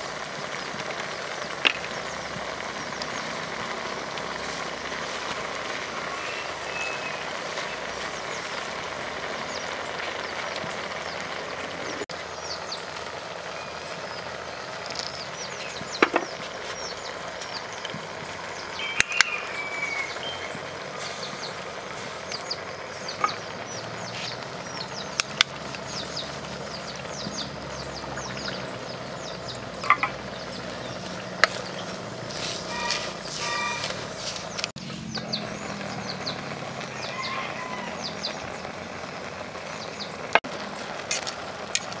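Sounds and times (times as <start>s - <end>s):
birds chirping: 0.0s - 42.0s
sharp pops: 29.2s - 32.6s.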